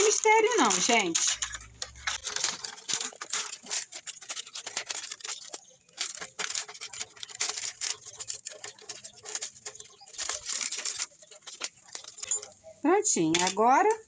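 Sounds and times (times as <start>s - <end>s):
scissors cutting plastic bottle: 0.0s - 12.6s.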